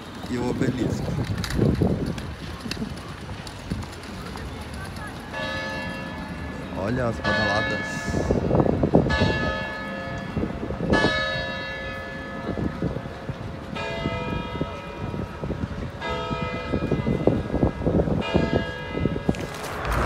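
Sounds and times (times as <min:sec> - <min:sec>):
clock tower bell striking: 0:07.1 - 0:12.7.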